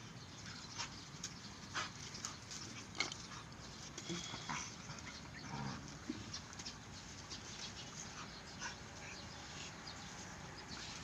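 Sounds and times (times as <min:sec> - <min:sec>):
dogs growling: 0:04.1 - 0:06.2.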